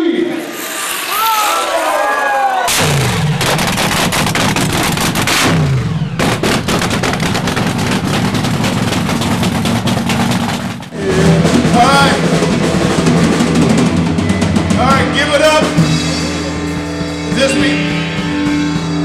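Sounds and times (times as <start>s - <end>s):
drum-led music: 2.7s - 19.0s
dragster engine crackling rattle: 3.4s - 5.6s, 6.2s - 11.0s.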